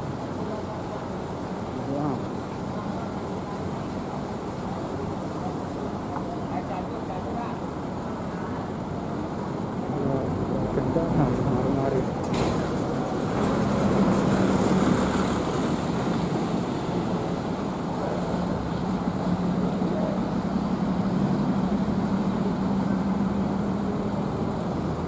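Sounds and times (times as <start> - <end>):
road traffic: 0.0 - 25.0
diesel bus engines humming: 8.7 - 25.0.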